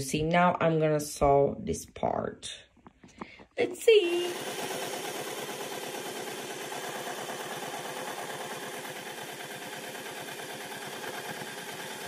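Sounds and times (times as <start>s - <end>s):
electric sewing machine stitching: 3.6s - 12.0s.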